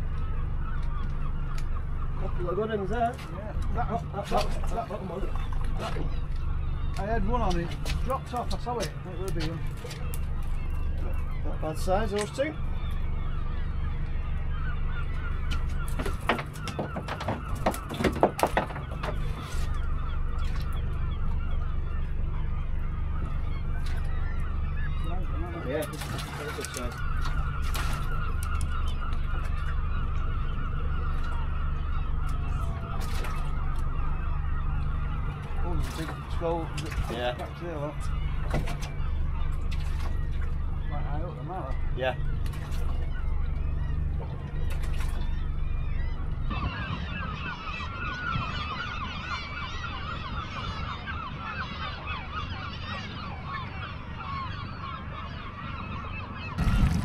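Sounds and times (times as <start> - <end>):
outboard motor idling: 0.0 - 51.4
seabirds calling: 0.0 - 57.0
low rumble: 18.6 - 52.4, 55.8 - 57.0.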